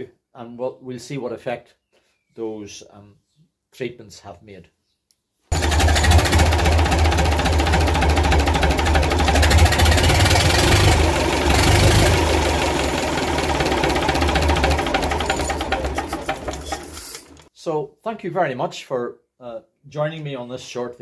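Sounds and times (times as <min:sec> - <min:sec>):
diesel engine idling: 0:05.5 - 0:17.4.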